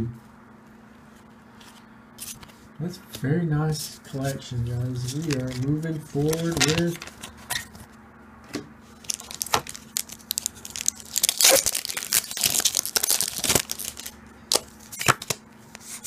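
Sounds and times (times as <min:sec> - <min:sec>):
foil wrapper crinkling and tearing: 0:05.0 - 0:07.4, 0:08.9 - 0:16.0.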